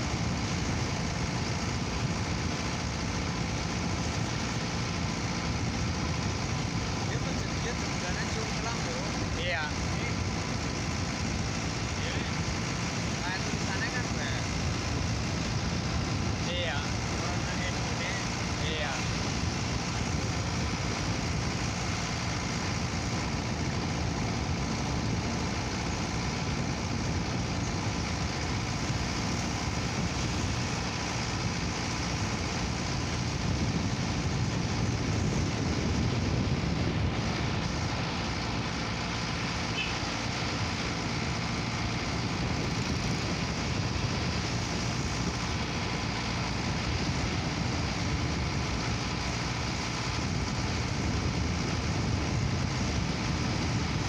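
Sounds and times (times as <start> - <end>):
vehicle engine and road noise: 0.0 - 54.0.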